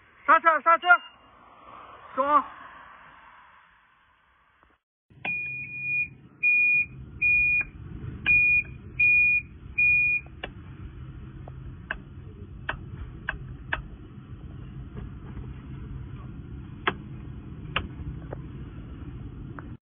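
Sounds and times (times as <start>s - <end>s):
short high beeps: 0.8s - 1.3s.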